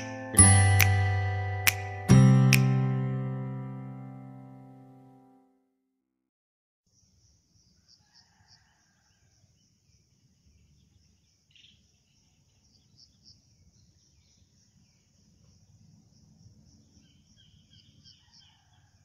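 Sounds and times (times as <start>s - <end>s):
insect drone with chirps: 6.9s - 19.0s.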